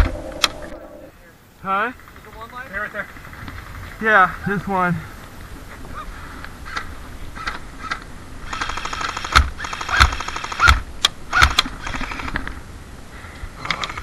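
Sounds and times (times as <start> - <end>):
airsoft rifle full-auto bursts: 8.5 - 10.7.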